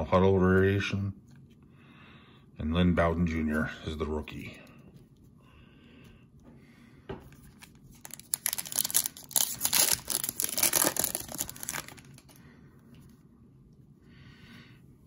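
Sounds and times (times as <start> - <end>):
foil wrapper tearing and crinkling: 7.6 - 12.4.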